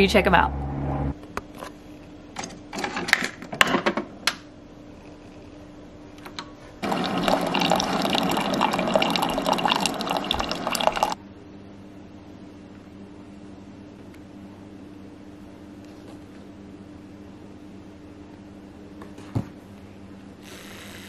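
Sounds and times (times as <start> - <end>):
liquid pouring: 6.8 - 11.2.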